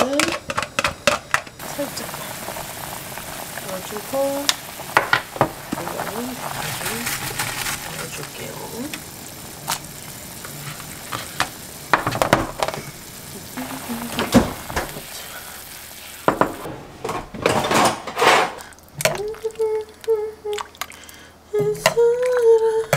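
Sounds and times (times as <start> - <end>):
soup boiling with bubbling hiss: 0.1 - 16.7, 18.6 - 22.9.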